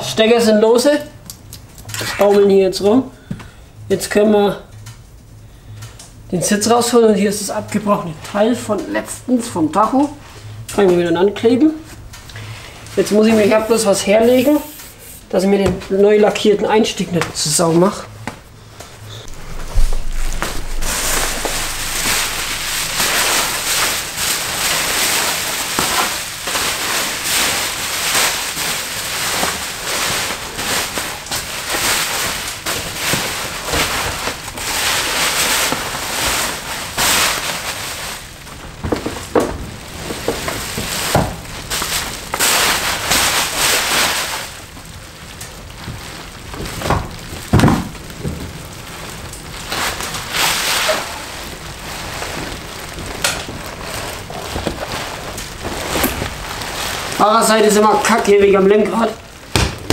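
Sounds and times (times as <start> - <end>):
bubble wrap crinkling: 0.3 - 59.9
bubble wrap clicks: 19.2 - 58.3.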